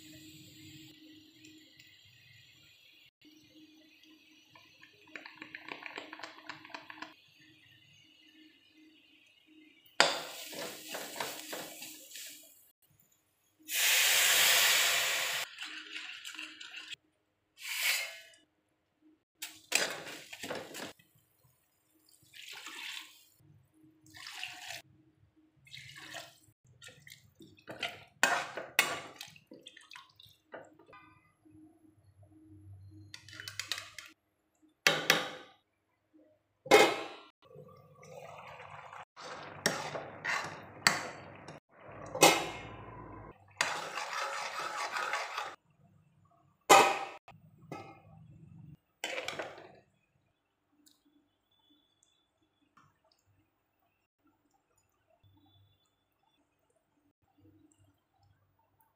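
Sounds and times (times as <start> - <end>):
water hissing in hot pan: 10.0 - 12.7, 13.6 - 15.5
spatula scraping steel pan: 39.6 - 41.1, 43.6 - 45.6.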